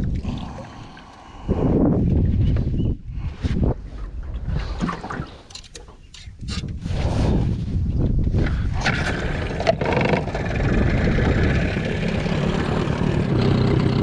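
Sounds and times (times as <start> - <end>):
wind buffeting microphone: 1.4 - 4.8, 6.3 - 14.0
boat motor droning: 8.9 - 14.0.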